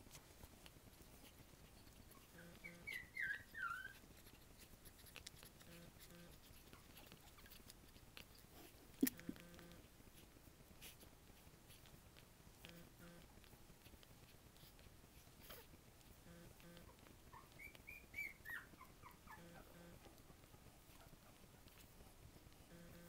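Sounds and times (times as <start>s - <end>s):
puppy squeaking: 1.3s - 8.0s, 16.8s - 20.0s.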